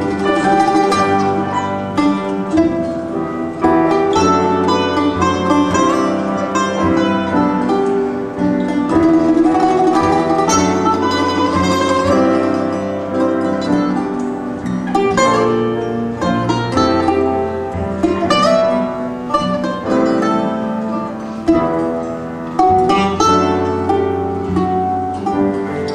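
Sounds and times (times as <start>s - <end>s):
acoustic guitar: 0.0s - 25.9s
plucked string instrument: 0.0s - 25.9s.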